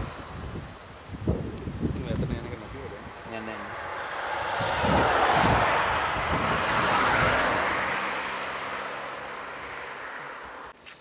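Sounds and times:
vehicle road noise passing: 0:02.3 - 0:10.8.

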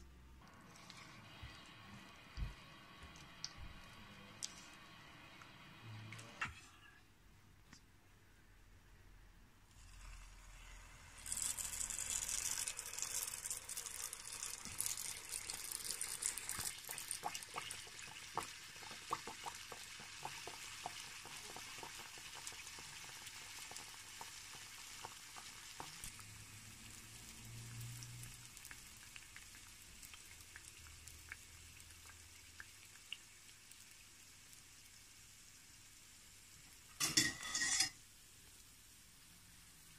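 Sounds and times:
oil crackles and pops: 0:09.7 - 0:35.4
batter sizzling in hot oil: 0:09.7 - 0:39.9.

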